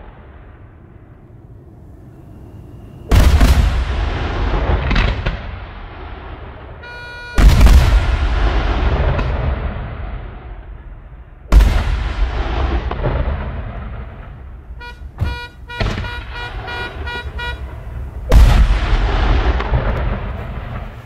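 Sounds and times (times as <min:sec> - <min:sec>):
firework shell booming: 0:03.1 - 0:21.0
car horn tooting: 0:06.8 - 0:08.0, 0:14.7 - 0:18.2.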